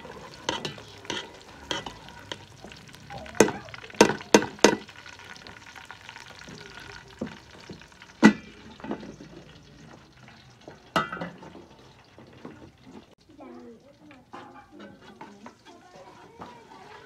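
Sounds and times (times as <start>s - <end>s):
food sizzling in a pan: 0.0s - 17.0s
utensil knocking against pan: 0.4s - 2.5s, 3.4s - 4.9s.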